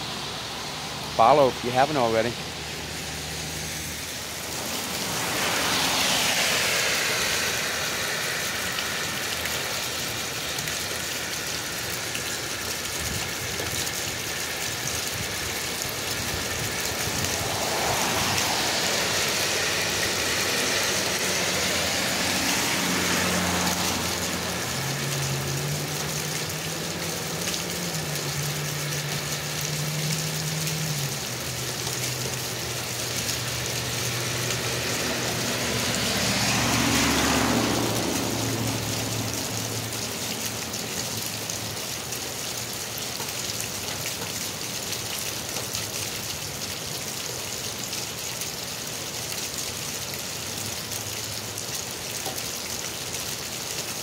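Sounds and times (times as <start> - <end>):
steady rain: 0.0 - 54.0
tyres hissing on wet road: 0.0 - 54.0
water gushing from drain pipe: 0.1 - 54.0
low engine hum: 15.6 - 41.2.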